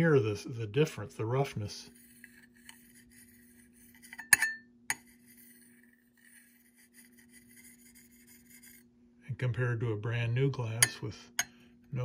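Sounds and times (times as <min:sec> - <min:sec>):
knife rasping over glass: 0:01.9 - 0:08.9
knife clinking on glass: 0:04.1 - 0:04.6.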